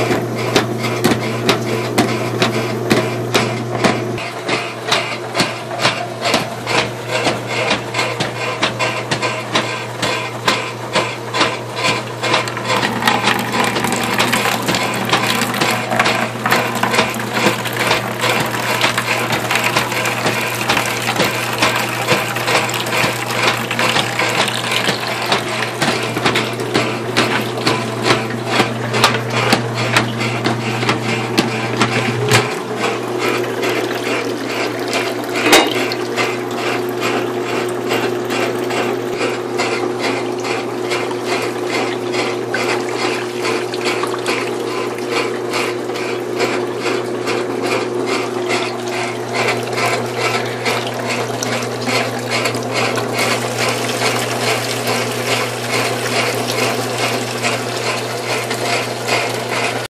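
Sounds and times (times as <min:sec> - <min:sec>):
rhythmic agitator clatter: 0:00.0 - 0:59.9
washing machine motor hum: 0:00.0 - 0:59.9
water sloshing: 0:39.9 - 0:59.8.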